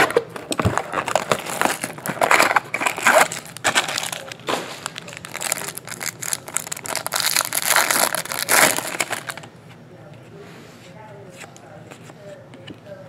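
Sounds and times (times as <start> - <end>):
plastic wrapper crinkling: 0.0 - 9.5.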